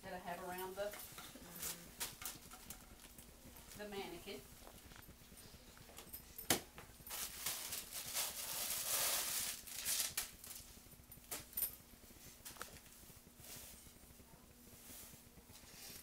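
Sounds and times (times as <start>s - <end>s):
plastic mesh crinkling: 7.1s - 10.7s.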